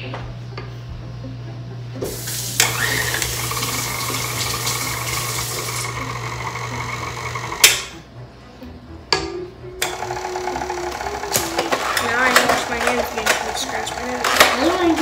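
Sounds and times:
tap water running: 2.0 - 7.5.

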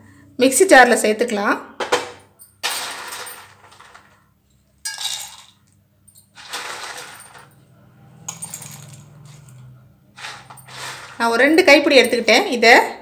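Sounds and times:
dry pieces rattling on metal: 2.6 - 4.2, 6.3 - 7.5, 10.2 - 12.1.

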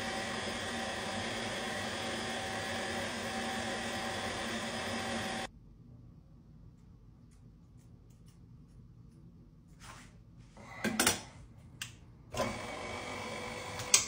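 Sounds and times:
stand mixer motor whining: 0.0 - 5.5, 12.3 - 14.0.

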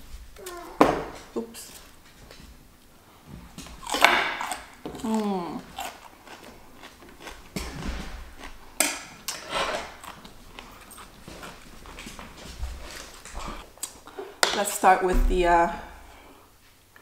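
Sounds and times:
crunchy cucumber chewing: 3.7 - 12.2.

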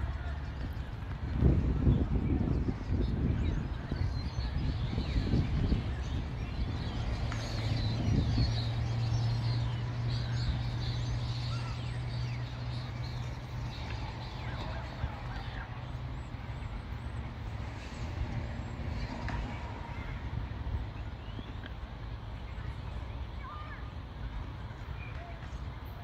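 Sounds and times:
distant diesel locomotive drone: 0.0 - 26.0
small birds chirping: 0.0 - 26.0.

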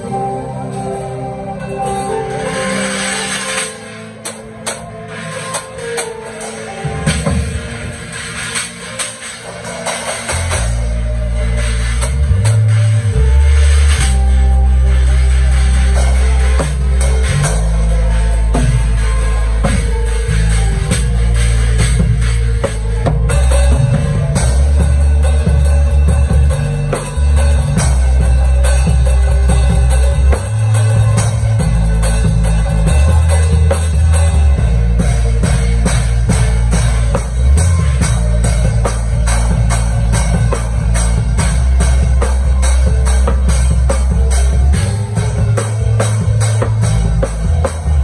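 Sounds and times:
drum kit playing a groove: 1.6 - 48.0
bass line: 9.6 - 48.0.

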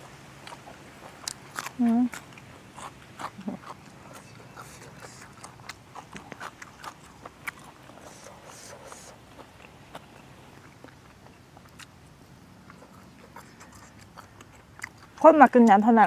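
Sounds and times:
wet chewing: 0.0 - 16.0
lip smacks: 12.6 - 15.8.

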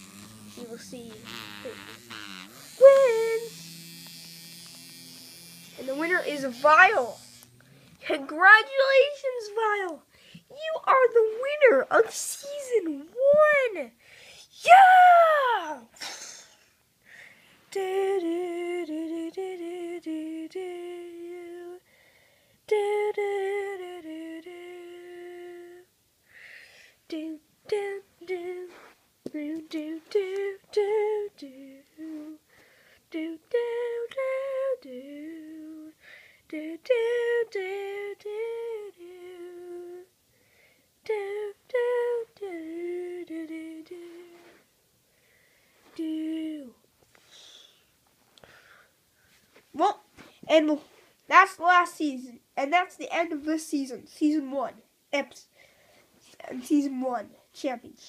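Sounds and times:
child humming: 0.0 - 9.8.

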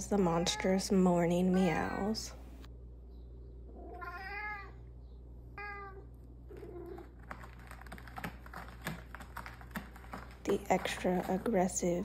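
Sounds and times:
cat meowing: 3.8 - 4.8, 5.6 - 7.0
claws scratching cardboard: 6.6 - 12.0.

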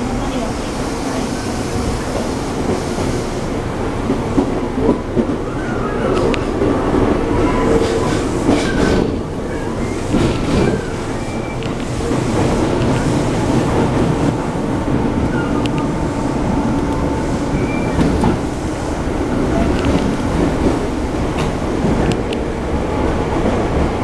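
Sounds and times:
train wheels rumbling on rail: 0.0 - 24.0.

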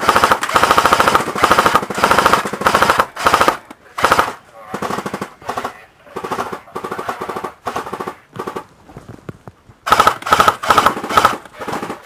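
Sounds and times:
airsoft machine gun bursts: 0.0 - 5.7, 9.9 - 12.0.

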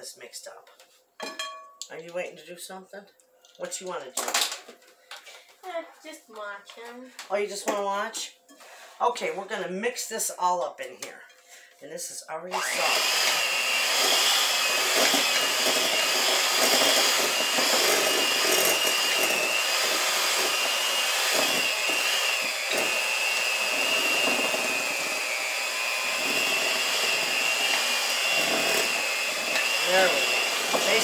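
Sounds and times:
electric mixer motor whine: 12.5 - 31.0.

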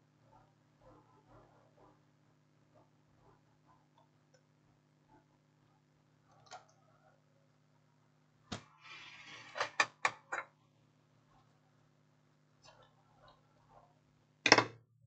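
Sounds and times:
short scrape: 8.8 - 9.7
circuit boards clicking and knocking: 14.5 - 14.8.

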